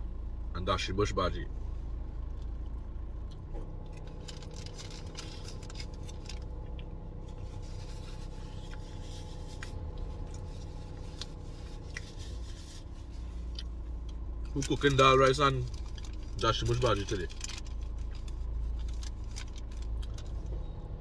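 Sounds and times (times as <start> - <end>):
low hum inside car: 0.0 - 21.0
paper wrapping rustling: 4.1 - 6.5.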